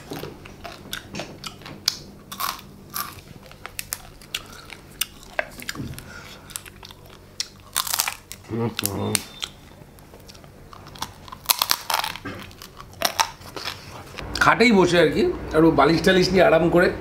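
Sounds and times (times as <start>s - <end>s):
crab shell cracking: 1.0s - 9.6s, 10.3s - 13.8s.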